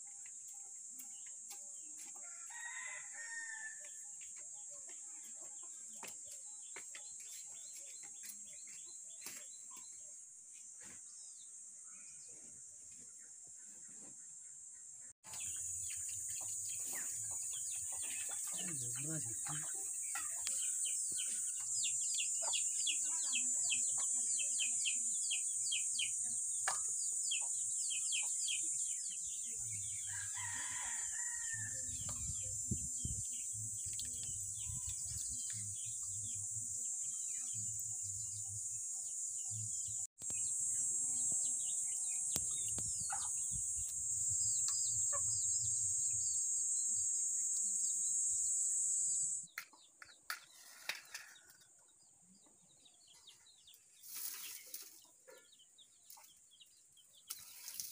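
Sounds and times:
small birds chirping: 0:00.0 - 0:57.9
rooster crowing: 0:02.2 - 0:03.9, 0:30.1 - 0:31.9
high-pitched insect drone: 0:40.3 - 0:49.5.

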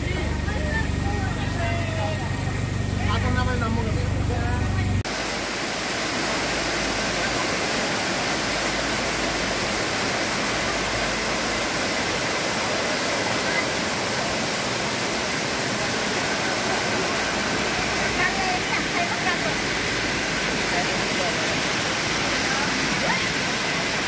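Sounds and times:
waterfall rushing over boulders: 0:05.0 - 0:24.0.

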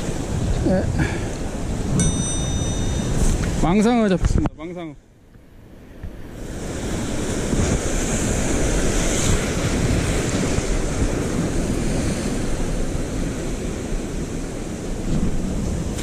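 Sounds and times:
wind rumbling on microphone: 0:00.0 - 0:04.7, 0:05.3 - 0:16.0
surf washing against rocks: 0:06.2 - 0:16.0.

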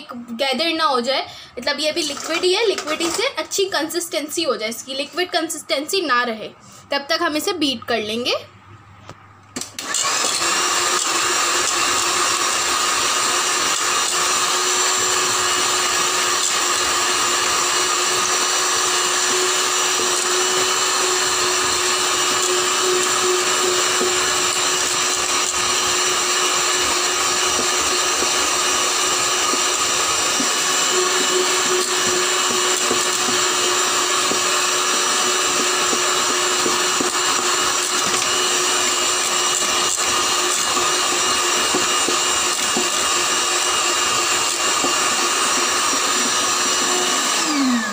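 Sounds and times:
electric hand mixer whining: 0:09.6 - 0:47.9.

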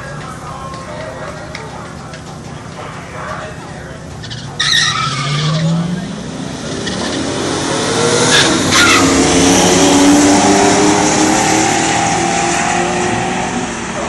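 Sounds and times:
car engines revving: 0:00.0 - 0:14.0
tires squealing: 0:04.0 - 0:14.0.

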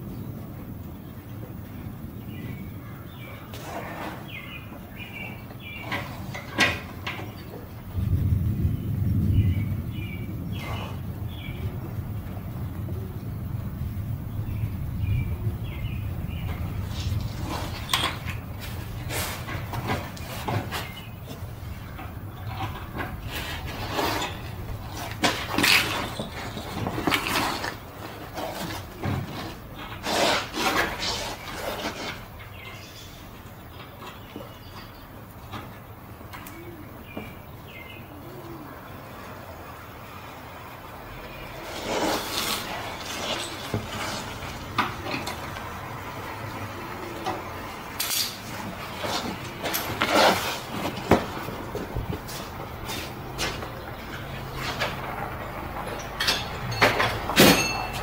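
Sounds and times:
scraping and rubbing on metal: 0:03.4 - 0:08.0, 0:15.7 - 0:33.3, 0:41.4 - 0:46.1, 0:47.2 - 0:58.0
metal tools clinking: 0:48.0 - 0:50.4, 0:55.7 - 0:58.0.

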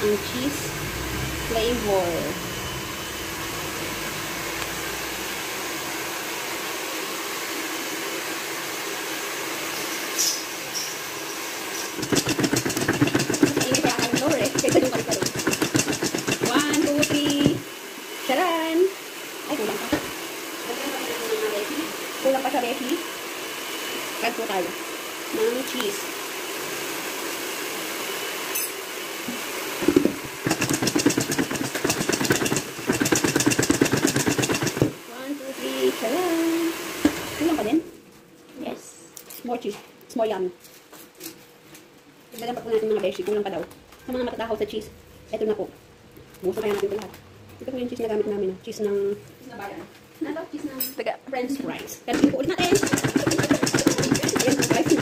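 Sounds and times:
popcorn rattling in a metal bowl: 0:12.0 - 0:17.6, 0:30.3 - 0:35.0, 0:52.1 - 0:55.0.

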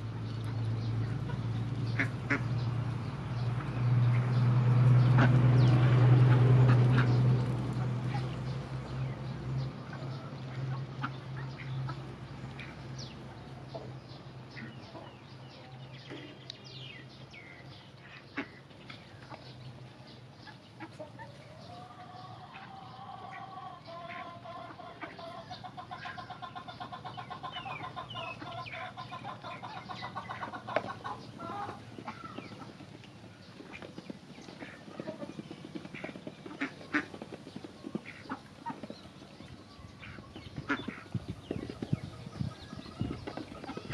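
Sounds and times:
duck bills tapping in feed: 0:00.3 - 0:02.6, 0:24.8 - 0:43.9
poultry calls: 0:01.2 - 0:02.7, 0:17.4 - 0:18.7, 0:20.4 - 0:32.9, 0:33.5 - 0:43.9.

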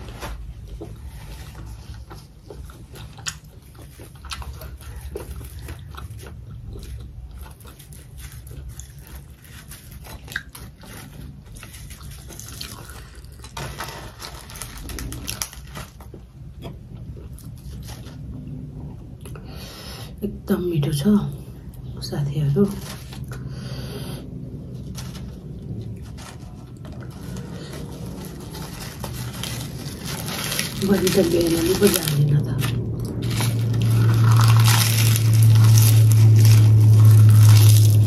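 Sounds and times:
person chewing food: 0:00.0 - 0:19.5, 0:32.7 - 0:38.0.

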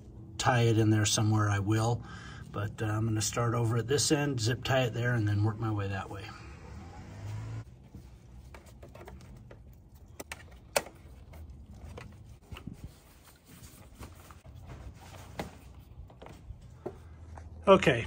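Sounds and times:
gloved hands rustling wiring: 0:07.7 - 0:17.5
cable clicking on plastic and metal: 0:08.6 - 0:12.2.

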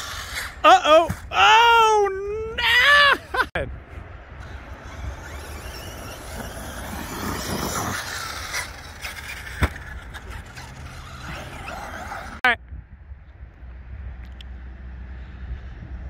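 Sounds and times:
rc truck motor and tyres hissing: 0:00.0 - 0:01.2, 0:04.4 - 0:12.4.

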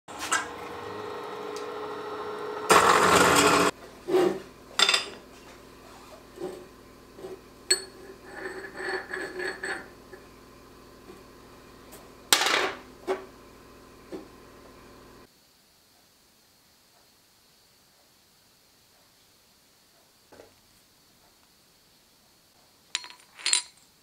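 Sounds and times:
machine running: 0:00.1 - 0:03.8.

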